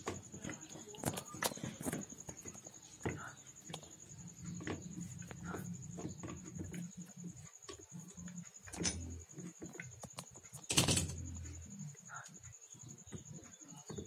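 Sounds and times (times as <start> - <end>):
pliers clattering on concrete: 8.6 - 9.2.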